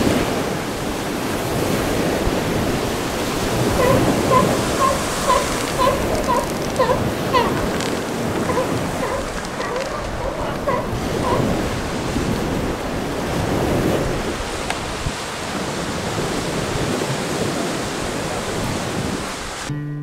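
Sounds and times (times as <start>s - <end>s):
ocean surf on beach: 0.0s - 19.7s
wind: 0.0s - 20.0s
acoustic guitar music: 19.7s - 20.0s.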